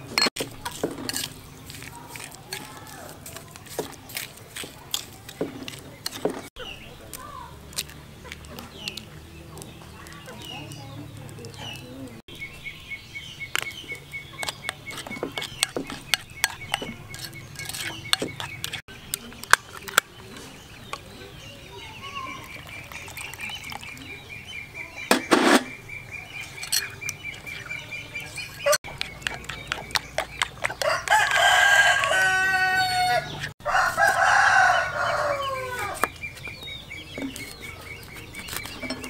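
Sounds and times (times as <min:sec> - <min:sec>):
metal spoon scraping in bowl: 0:00.0 - 0:06.5, 0:14.4 - 0:21.1, 0:25.1 - 0:25.8, 0:26.4 - 0:31.9, 0:37.2 - 0:39.0.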